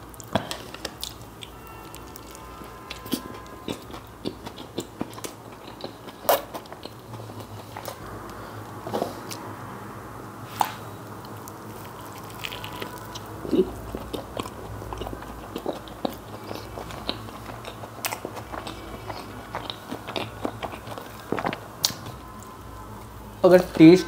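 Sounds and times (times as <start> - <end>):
person chewing a burger: 0.0 - 9.5, 10.6 - 22.5.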